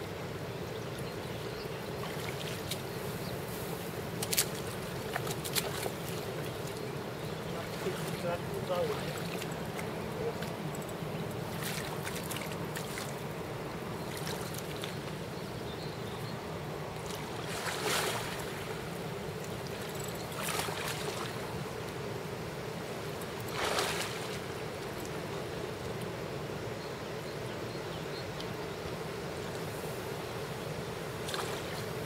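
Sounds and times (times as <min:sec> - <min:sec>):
river water rushing: 0:01.8 - 0:15.6, 0:16.3 - 0:26.6.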